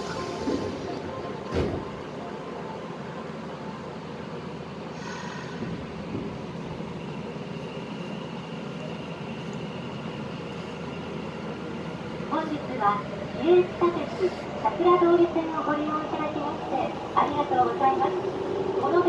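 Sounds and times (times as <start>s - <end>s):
train wheels rumbling on rail: 4.1s - 19.0s.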